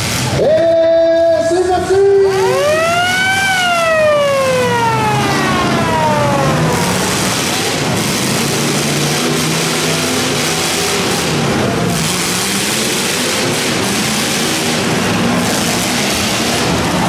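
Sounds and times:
car engines revving: 0.0s - 0.4s, 1.4s - 17.0s
siren winding up and down: 2.3s - 8.0s.

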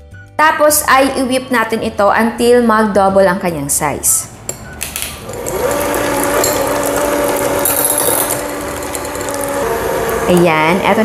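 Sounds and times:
mixer beaters knocking: 5.1s - 10.6s
electric hand mixer whirring: 5.2s - 11.0s.

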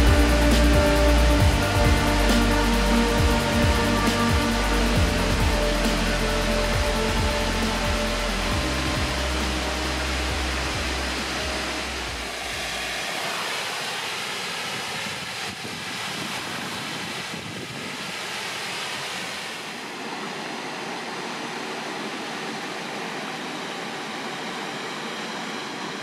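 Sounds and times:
lake water washing: 0.0s - 20.0s
waterfall roaring: 0.0s - 24.5s.

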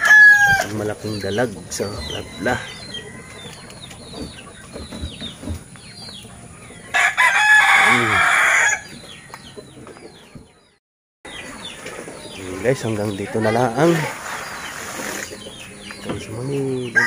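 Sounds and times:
rooster crowing: 0.0s - 0.7s, 6.9s - 8.9s.

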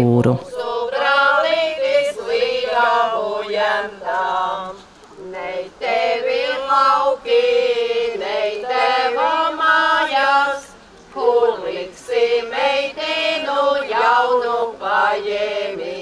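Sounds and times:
women's ensemble singing unaccompanied: 0.4s - 16.0s.

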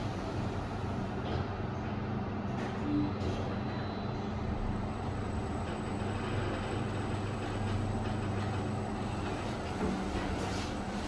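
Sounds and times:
lift car humming and rumbling: 0.0s - 11.0s.

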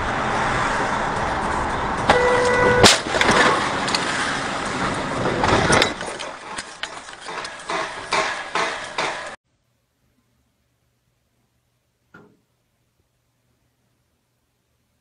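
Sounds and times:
engine and road noise: 0.0s - 9.4s
car horn: 2.1s - 3.0s
knocks and rattles: 3.1s - 9.4s.

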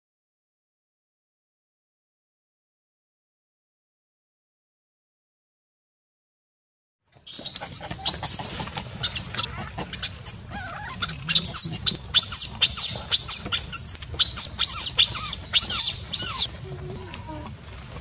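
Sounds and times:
baby monkey screaming: 7.3s - 16.8s.

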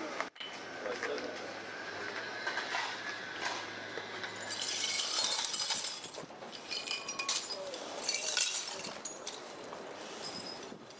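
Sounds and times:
sharp glass clink: 4.3s - 9.4s
broom sweeping broken glass: 4.3s - 10.8s.

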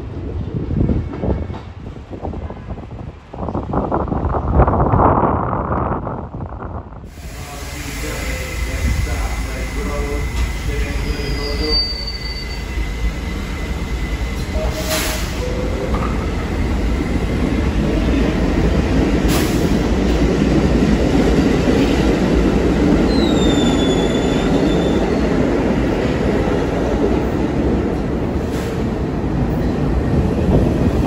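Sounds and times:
train rumble: 0.0s - 31.0s
hisses of air: 7.1s - 9.4s.

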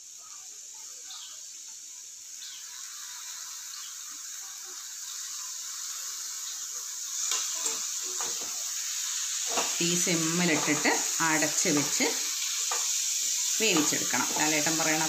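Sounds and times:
chicken sizzling in pan: 0.0s - 15.0s
metal spoon scraping pan: 9.4s - 12.0s.

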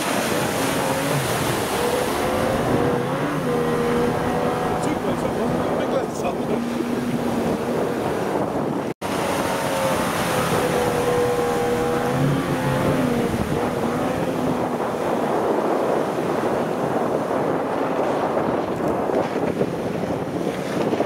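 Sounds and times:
outboard motor running: 0.0s - 21.0s
rushing wash of water: 0.0s - 21.0s
wind on microphone: 0.0s - 21.0s.

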